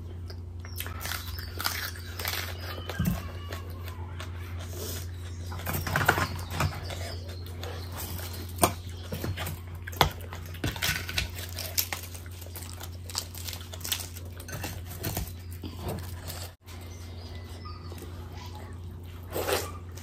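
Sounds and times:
steady low hum: 0:00.0 - 0:20.0
bread tearing: 0:08.0 - 0:16.6.

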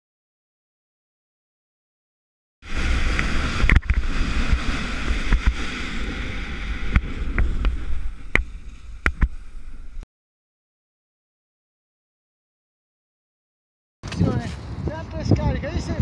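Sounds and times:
hiss of riding over snow: 0:02.6 - 0:10.0
wind buffeting microphone: 0:02.6 - 0:10.0, 0:14.0 - 0:16.0.

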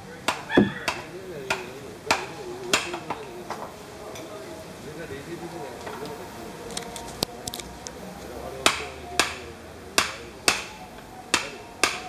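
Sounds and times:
hand tool striking timber: 0:00.6 - 0:01.0.

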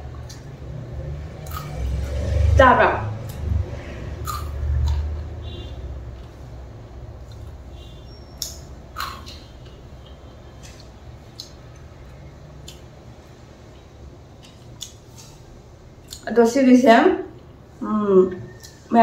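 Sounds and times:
person chewing crunchy food: 0:01.4 - 0:01.8, 0:04.2 - 0:05.2.

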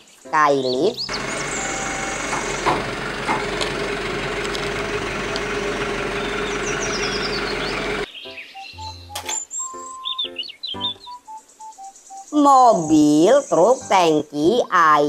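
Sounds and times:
bird chirping: 0:00.0 - 0:02.8, 0:04.6 - 0:13.9
truck hydraulic hum: 0:01.1 - 0:08.1.

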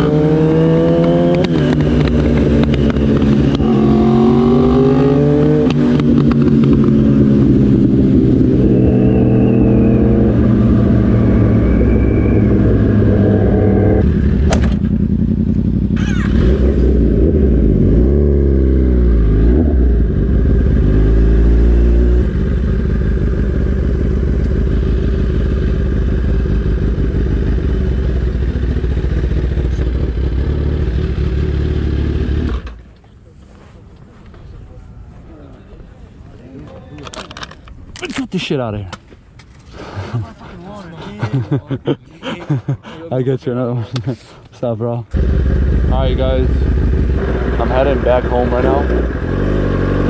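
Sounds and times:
motorcycle engine: 0:00.0 - 0:32.8, 0:45.1 - 0:50.0
sharp click: 0:14.5 - 0:14.9.

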